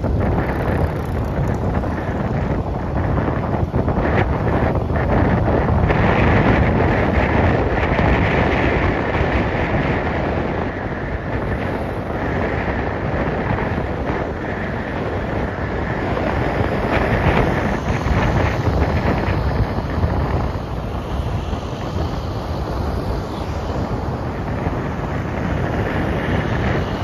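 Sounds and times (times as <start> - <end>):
vehicle road noise: 0.0 - 27.0
wind roaring over microphone: 0.0 - 27.0.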